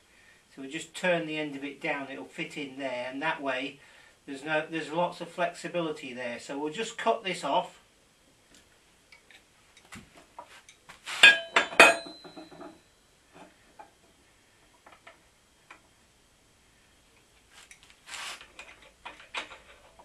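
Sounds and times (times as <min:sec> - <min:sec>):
steel clanking: 0:11.2 - 0:12.8.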